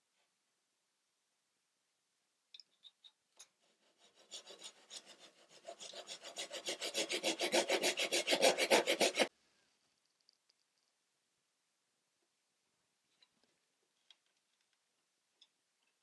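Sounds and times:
hand saw cutting wood: 3.6s - 9.3s.

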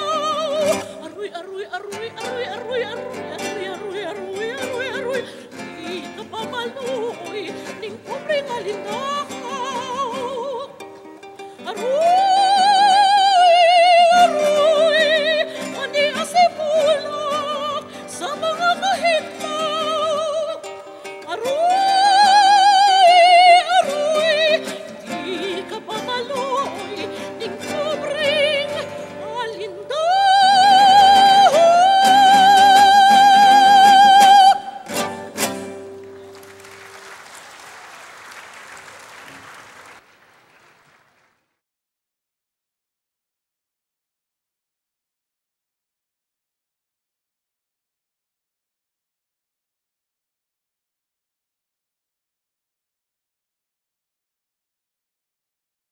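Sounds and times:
operatic singing voice: 0.0s - 10.8s, 21.3s - 34.9s
instrumental accompaniment: 34.8s - 37.0s.

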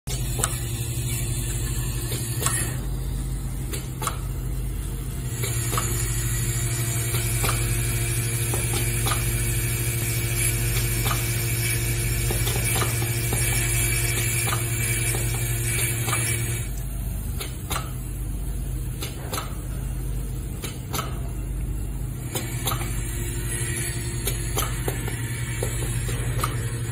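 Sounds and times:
electromagnetic hum: 0.1s - 26.9s.

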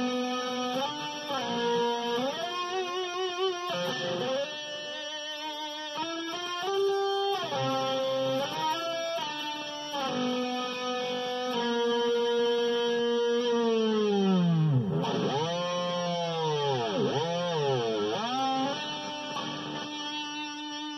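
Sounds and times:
electric guitar sustained notes: 0.0s - 20.9s.

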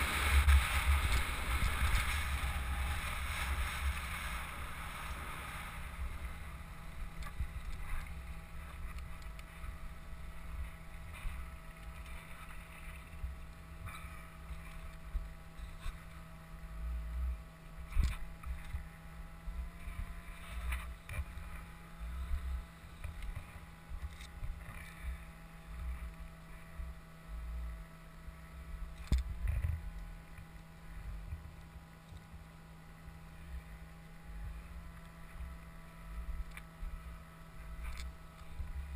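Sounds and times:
wind buffeting microphone: 0.0s - 12.3s.

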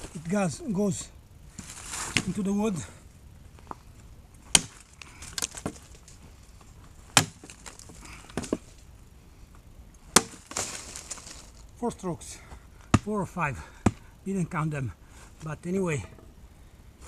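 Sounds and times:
axe chopping log: 4.5s - 5.8s, 7.1s - 8.6s, 10.1s - 10.8s, 12.9s - 13.2s, 13.8s - 14.0s.

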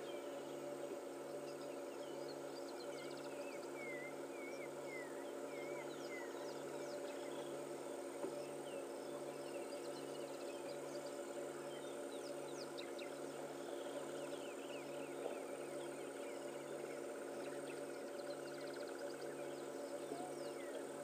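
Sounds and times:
birds chirping: 0.0s - 21.0s
steady low hum: 0.0s - 21.0s.

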